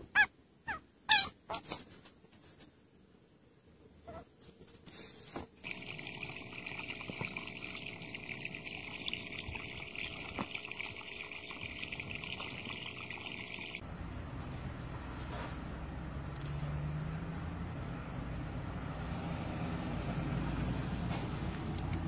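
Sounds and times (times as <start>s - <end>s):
water trickling and splashing: 5.6s - 13.8s.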